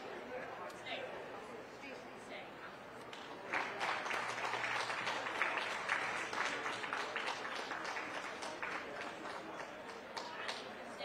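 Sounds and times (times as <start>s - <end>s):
audience applauding: 3.2s - 10.6s.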